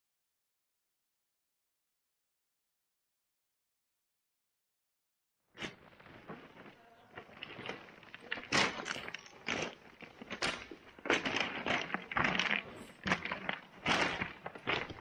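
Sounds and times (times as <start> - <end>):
footsteps crunching on ice and rock: 5.6 - 15.0.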